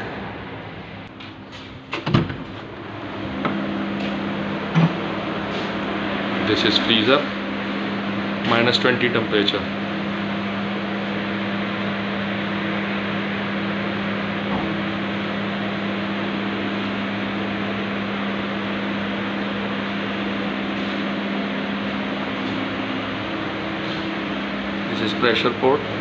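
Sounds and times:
evaporator fan whoosh and hum: 0:00.0 - 0:26.0.

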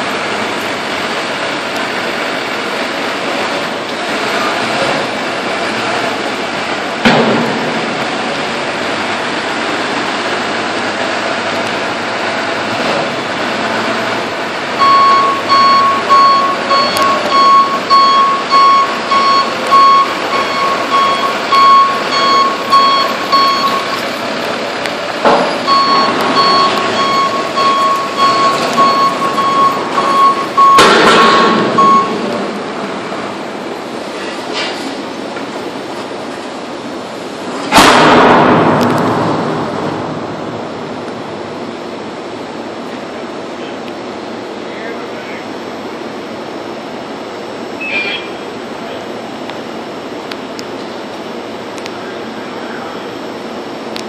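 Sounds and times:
industrial background noise: 0:00.0 - 0:54.0
vehicle backup alarm beeping: 0:13.1 - 0:24.6, 0:25.3 - 0:33.3, 0:47.8 - 0:48.6.

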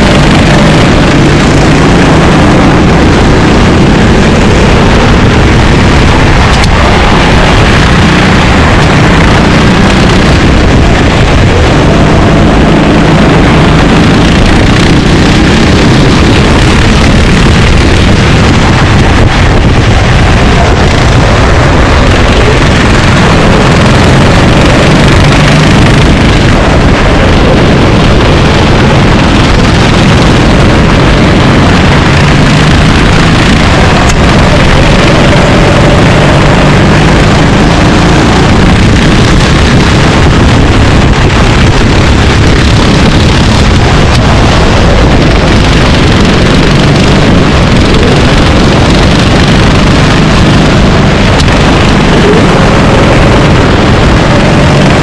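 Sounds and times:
racing kart engines: 0:00.0 - 0:55.0
wind noise on microphone: 0:00.0 - 0:55.0.

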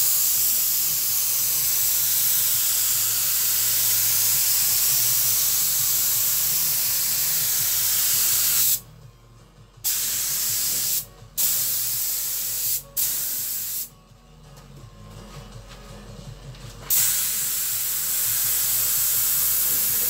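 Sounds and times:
spray gun hissing: 0:00.0 - 0:08.8, 0:09.9 - 0:13.9, 0:16.9 - 0:20.0.

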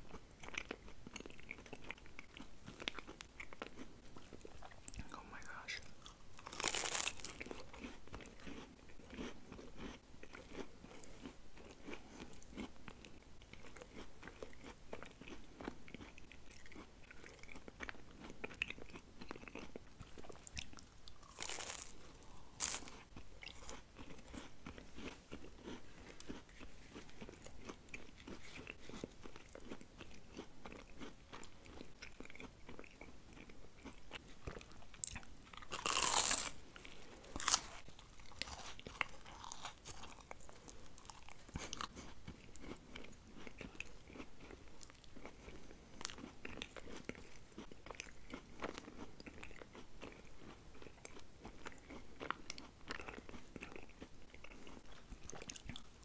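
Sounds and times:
wet chewing: 0:00.0 - 0:56.0
crunchy bites: 0:06.0 - 0:56.0.

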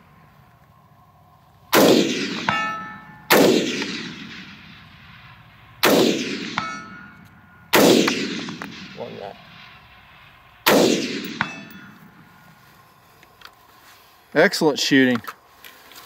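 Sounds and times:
metallic ring of steel target: 0:01.7 - 0:10.0, 0:10.6 - 0:12.6
rifle shots: 0:01.7 - 0:12.4.

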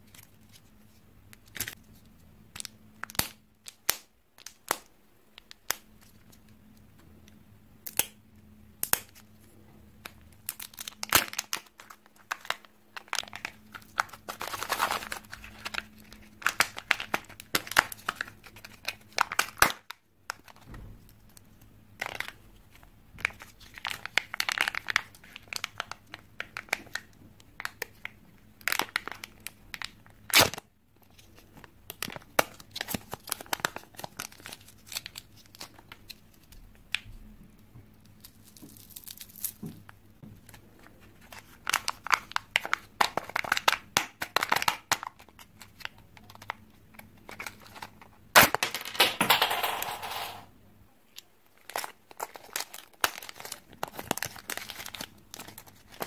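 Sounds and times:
plastic wrapping crinkling: 0:10.0 - 0:20.7, 0:21.3 - 0:37.1, 0:38.0 - 0:48.5, 0:51.5 - 0:56.0.

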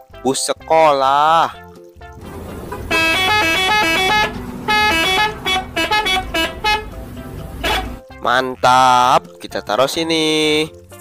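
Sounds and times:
low bus engine noise: 0:02.2 - 0:08.0
musical bus horn tune: 0:02.2 - 0:08.1.

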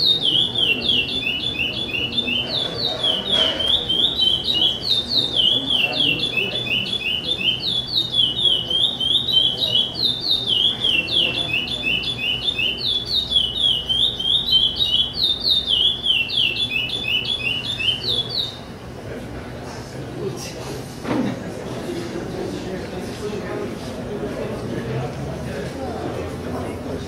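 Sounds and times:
blackbird singing whistled notes: 0:00.0 - 0:18.6.

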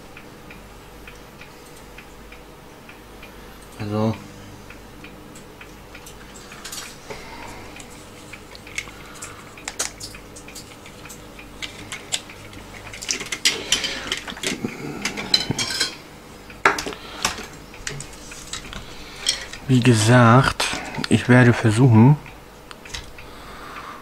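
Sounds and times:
hand tool clicking on metal parts: 0:08.6 - 0:16.0.

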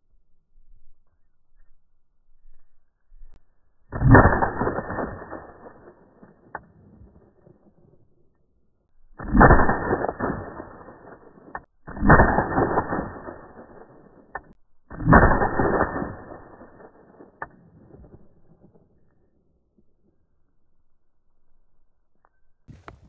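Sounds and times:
gunshots echoing: 0:03.9 - 0:07.8, 0:09.2 - 0:18.8.

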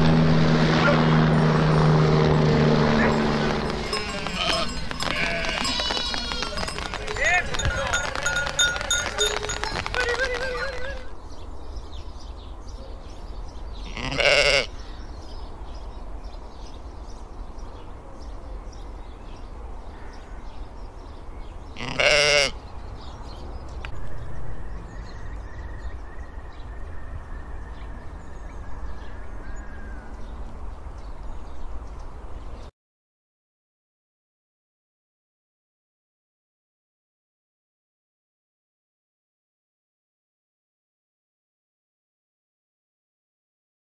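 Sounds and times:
sheep bleating: 0:03.0 - 0:11.1, 0:13.8 - 0:14.7, 0:21.8 - 0:22.6.

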